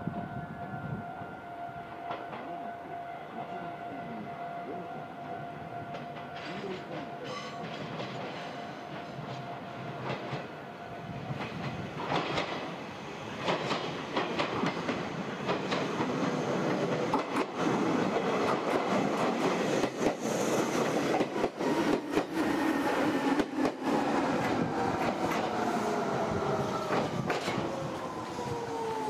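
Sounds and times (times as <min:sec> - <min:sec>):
train wheels clicking on rail joints: 0:05.9 - 0:10.5, 0:11.3 - 0:27.9.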